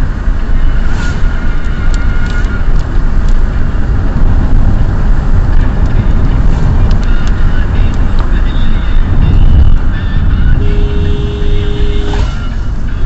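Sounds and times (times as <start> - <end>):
car driving on wet road: 0.0 - 8.4, 11.8 - 13.0.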